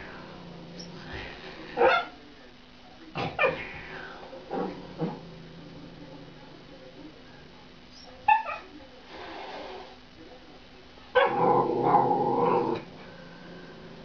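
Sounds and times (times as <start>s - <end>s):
dog barking and growling: 1.7s - 2.2s, 11.1s - 12.9s.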